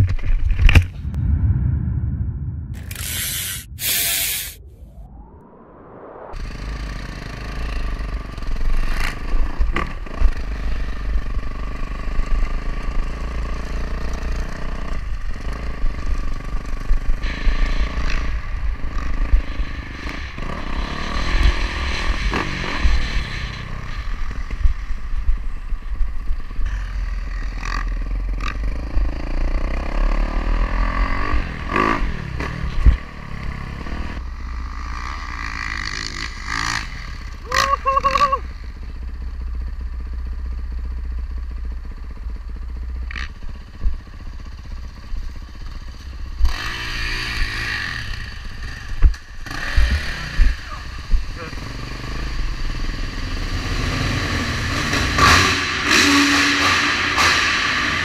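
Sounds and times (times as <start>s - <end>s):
wind buffeting microphone: 0.8s - 5.4s
dirt bike engine revving: 6.5s - 24.9s, 27.0s - 38.5s, 46.4s - 58.0s.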